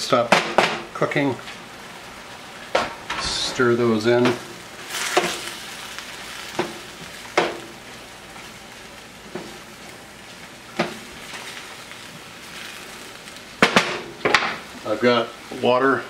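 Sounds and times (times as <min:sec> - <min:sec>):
food sizzling in a skillet: 0:00.0 - 0:16.0
wooden spoon knocking on pan: 0:06.5 - 0:07.7, 0:10.7 - 0:11.0.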